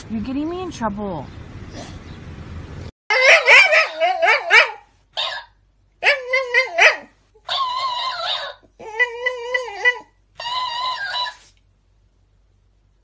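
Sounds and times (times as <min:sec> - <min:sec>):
dog whining and yowling: 0:03.1 - 0:11.6.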